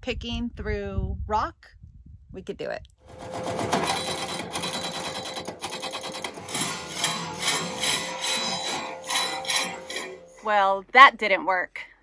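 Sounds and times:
hydraulic breaker hammering rock: 0:03.1 - 0:10.4
machine engine running: 0:03.1 - 0:10.4.

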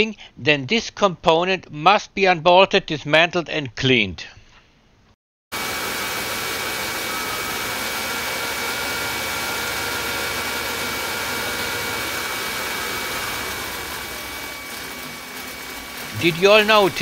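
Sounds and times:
car engine idling: 0:05.8 - 0:17.0.

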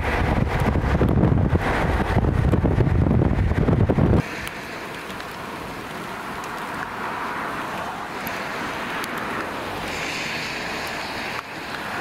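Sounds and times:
wind and rain from inside vehicle: 0:00.0 - 0:12.0
faint ticks: 0:09.0 - 0:10.2, 0:10.8 - 0:11.9.

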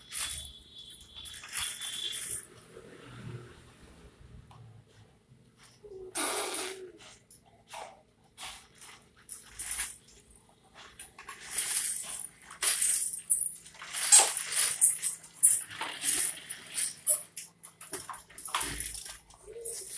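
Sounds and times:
baby walker rattling on stone floor: 0:00.0 - 0:02.6, 0:10.8 - 0:19.9.

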